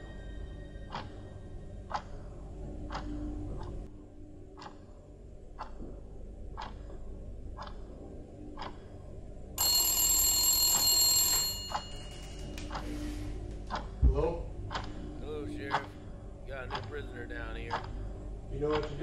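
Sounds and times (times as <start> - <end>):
clock ticking: 0.9 - 3.9, 4.6 - 4.9, 5.5 - 9.0, 9.6 - 12.9, 13.7 - 19.0
telephone bell ringing: 9.6 - 13.1.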